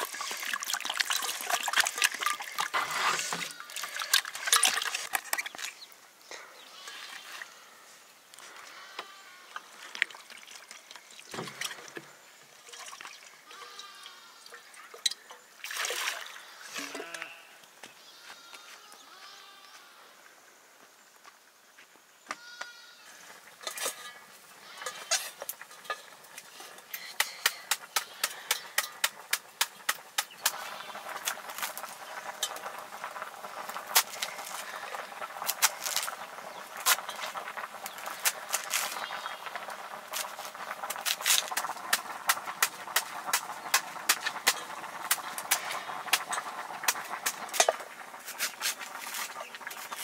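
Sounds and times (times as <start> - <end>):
steady hiss: 22.9 - 50.0.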